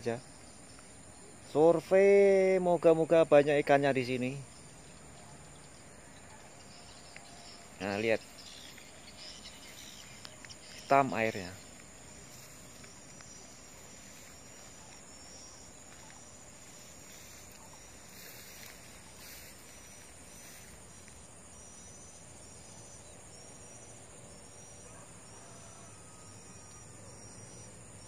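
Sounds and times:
high-pitched insect drone: 0.0 - 28.0
short insect chirps: 0.0 - 28.0.

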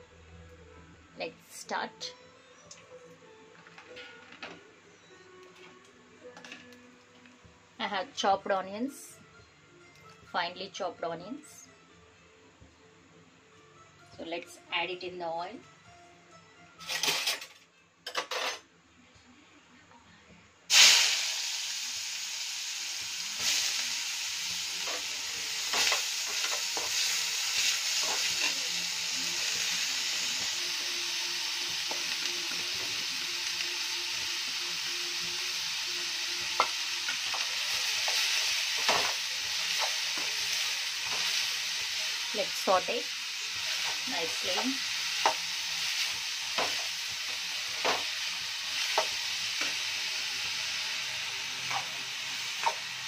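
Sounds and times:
onions sizzling in hot oil: 20.7 - 53.0.

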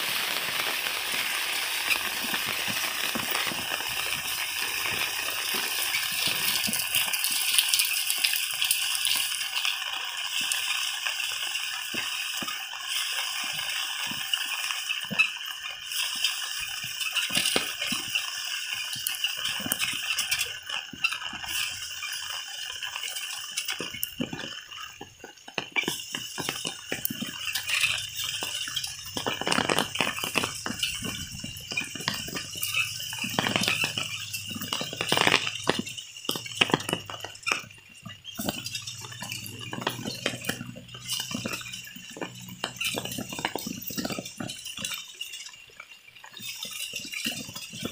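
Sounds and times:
heavy rain falling: 0.0 - 9.2, 23.6 - 44.6
raindrops ticking and splashing: 0.0 - 47.9.

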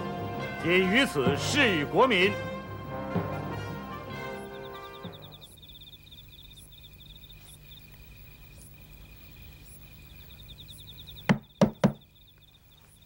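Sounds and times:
crickets chirping: 0.0 - 13.0
knocks on a door: 1.2 - 1.6, 3.1 - 3.6, 11.3 - 12.1.

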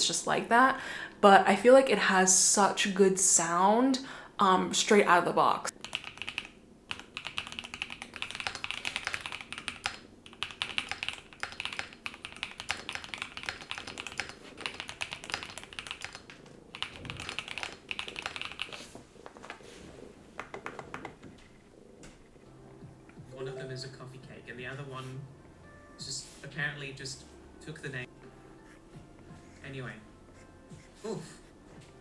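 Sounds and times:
mechanical keyboard typing: 5.7 - 18.9.

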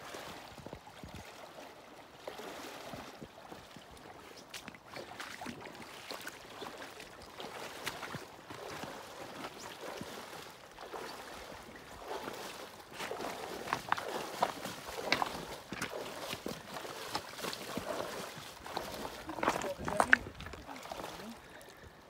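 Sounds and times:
splashing steps in water: 0.0 - 21.9
river water flowing: 0.0 - 22.0.

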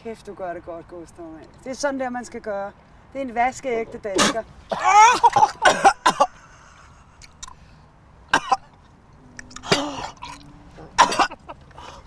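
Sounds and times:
man coughing and hacking: 4.2 - 6.4, 8.3 - 8.7, 9.6 - 10.3, 11.0 - 11.6.

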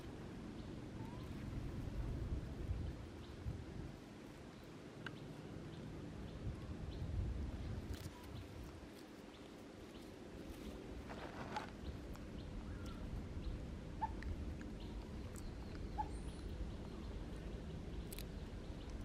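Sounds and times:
low outdoor rumble: 0.0 - 19.0
faint animal squeaks: 0.9 - 1.4, 14.0 - 14.2, 15.1 - 16.4.

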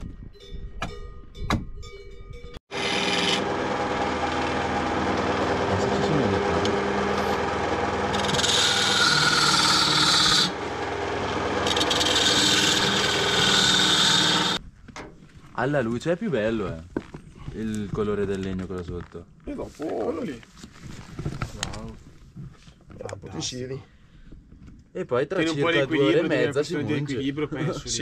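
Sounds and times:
turning tool cutting wood: 2.7 - 14.6
wood lathe running: 2.7 - 14.6.

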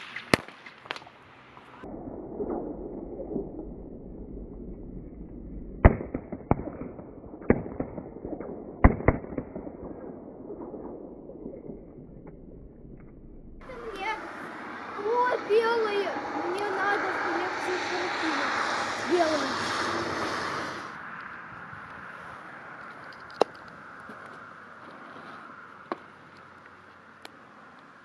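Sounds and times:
firecrackers cracking: 0.0 - 1.9
loud firecracker pops: 5.8 - 9.8
firecracker crackling hiss: 13.7 - 21.0.

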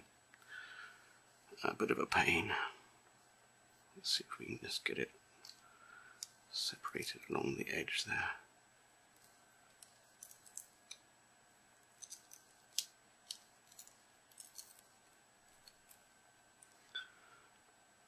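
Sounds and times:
glass clicking and crackling: 9.8 - 11.0, 12.0 - 14.9.

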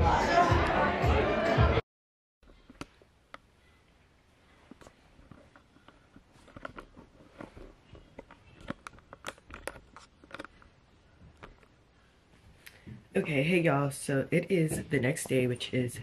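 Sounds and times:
faint irregular clicks and knocks: 4.6 - 11.8.

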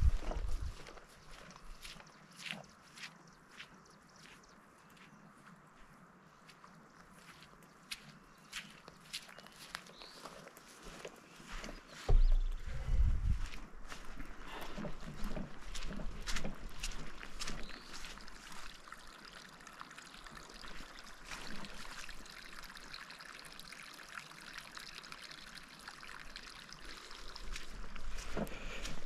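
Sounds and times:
footsteps on grass: 0.0 - 18.8, 20.9 - 22.1, 27.4 - 29.0
rainwater trickling: 14.9 - 29.0.

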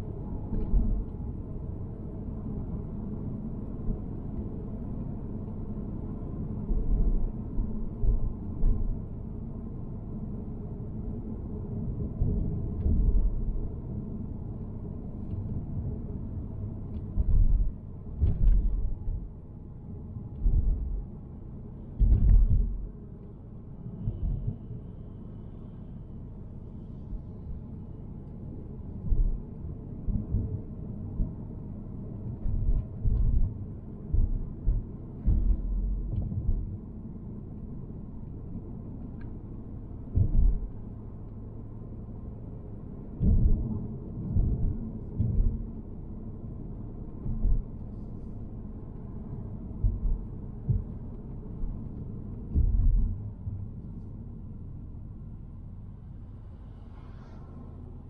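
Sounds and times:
car road noise rumble: 0.0 - 58.0
low thuds: 17.0 - 19.3, 22.0 - 22.9, 32.4 - 36.8, 40.1 - 40.7, 43.2 - 43.7, 52.5 - 53.5.

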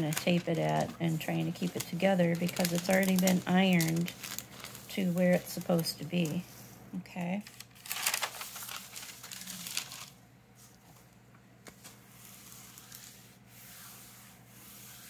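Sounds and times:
paper rustling: 0.0 - 6.5, 7.4 - 15.0
hand iron rubbing over paper: 11.8 - 15.0.

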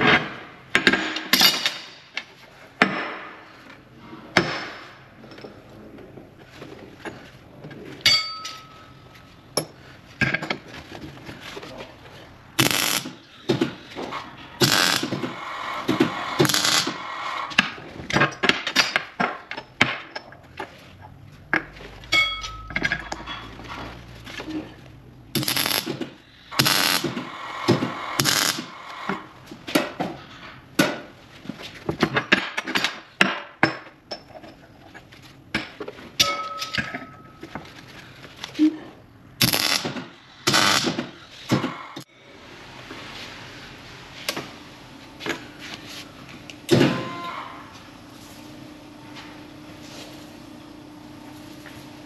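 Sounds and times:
metal parts and tools clinking: 8.0 - 10.6, 21.6 - 24.8.

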